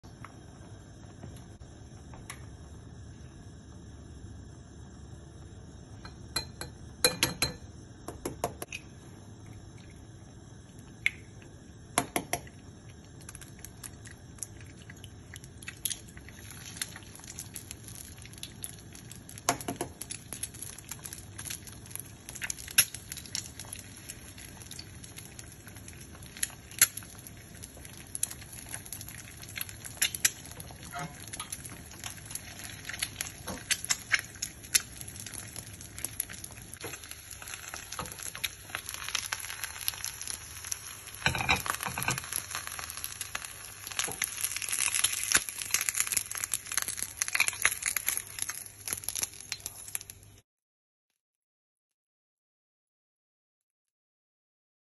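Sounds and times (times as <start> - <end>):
eggs frying crackles and pops: 0.0 - 50.4
eggshells being cracked: 41.6 - 50.2.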